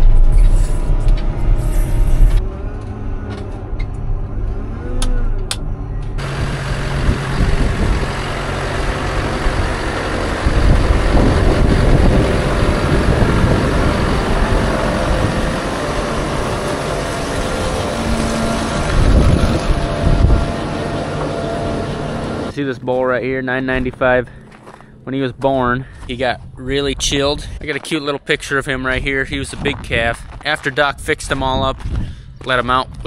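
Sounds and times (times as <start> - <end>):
loader engine inside cab: 0.0 - 22.6
tractor and mixer wagon running: 0.0 - 33.0
wind on microphone: 6.4 - 8.2, 10.4 - 20.8, 31.2 - 33.0.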